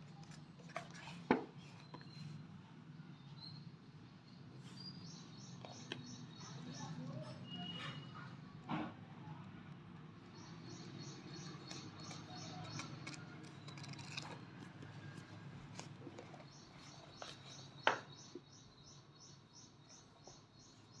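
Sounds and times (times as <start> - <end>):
book pages turning: 0.1 - 2.3, 11.4 - 17.8.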